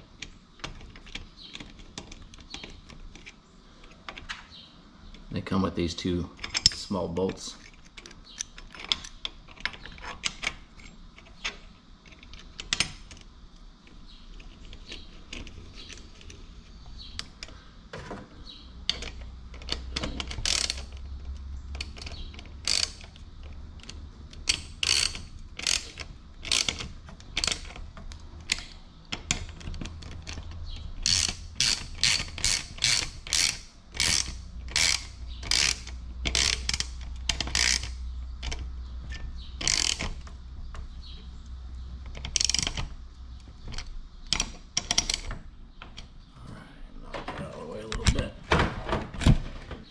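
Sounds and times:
ratchet wrench clicking: 18.9 - 21.0, 21.7 - 23.2, 23.8 - 27.8, 28.4 - 40.2, 42.2 - 42.9.

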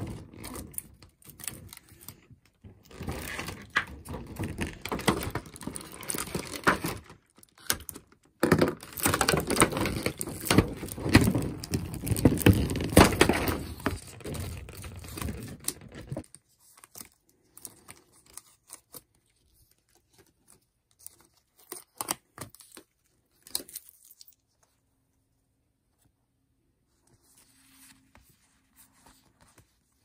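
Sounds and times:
plastic packaging crinkling and tearing: 0.0 - 24.4
cardstock tapping and rustling: 3.0 - 16.2.

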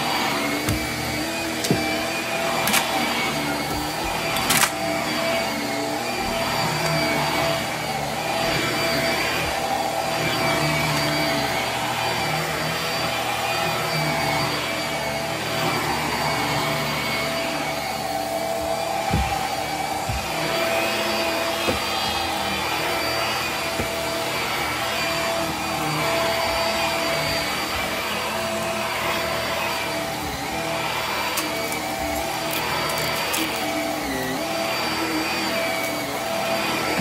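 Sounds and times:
vacuum cleaner motor whine: 0.0 - 37.0.

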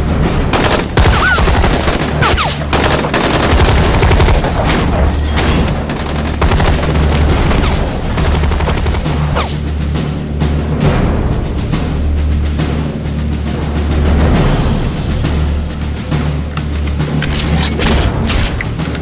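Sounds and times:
rifles and machine guns firing: 0.4 - 9.5.

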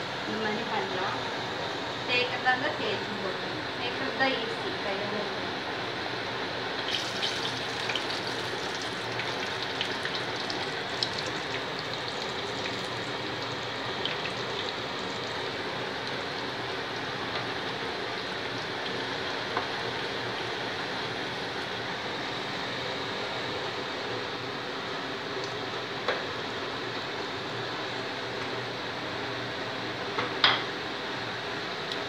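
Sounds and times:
dough deep-frying in oil: 6.5 - 32.0.

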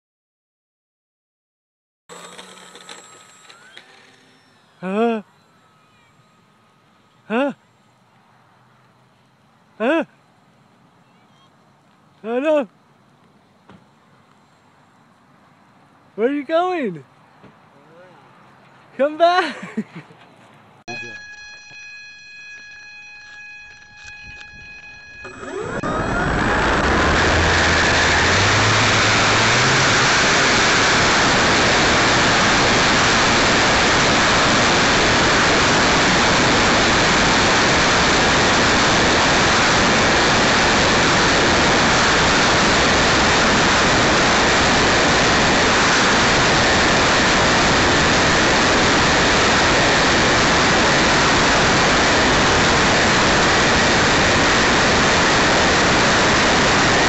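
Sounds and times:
electric motor hum: 2.1 - 7.1, 20.9 - 57.0
prop wash and wind noise: 24.2 - 57.0.

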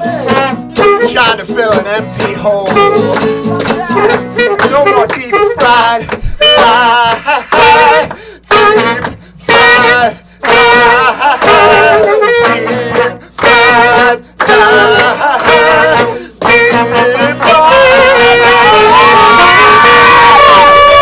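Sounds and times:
strummed acoustic guitar: 0.0 - 21.0
saxophone playing held notes: 0.7 - 1.3, 2.6 - 6.9, 7.8 - 14.2, 15.4 - 21.0
person shouting into microphone: 2.9 - 5.8, 18.1 - 21.0.

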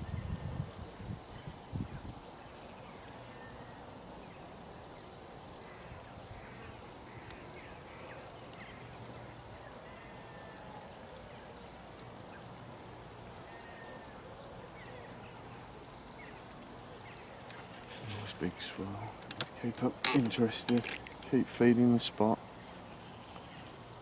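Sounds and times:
low hiss and hum: 0.0 - 24.0
faint bird chirps: 1.2 - 19.2.

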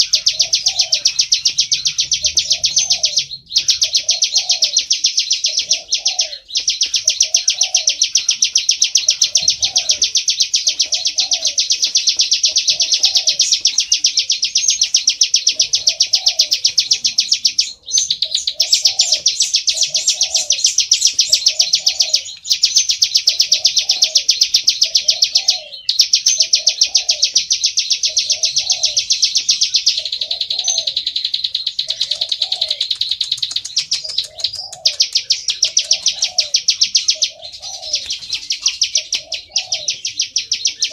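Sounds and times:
soft low bird call: 29.9 - 40.9.

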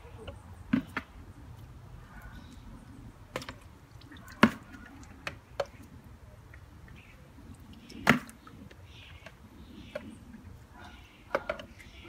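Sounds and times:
water splashes: 0.0 - 12.0
faint water drips: 1.3 - 12.0
knocks of net and bucket: 3.3 - 3.6, 4.3 - 5.8, 7.9 - 8.4.

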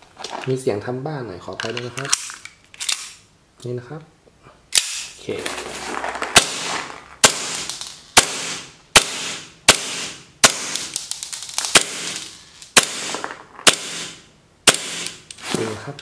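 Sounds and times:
airsoft pistol shots: 6.4 - 11.0, 11.7 - 12.2, 12.8 - 15.2.

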